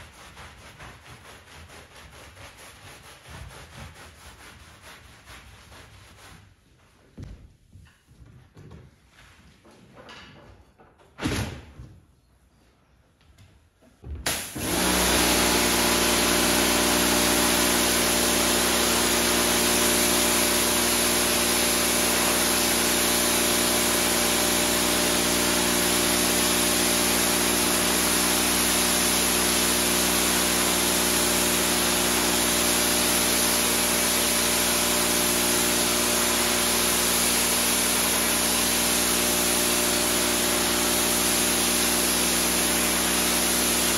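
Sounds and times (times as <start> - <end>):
pressure washer motor hum: 14.3 - 43.9
pressure washer water jet hissing: 14.3 - 43.9.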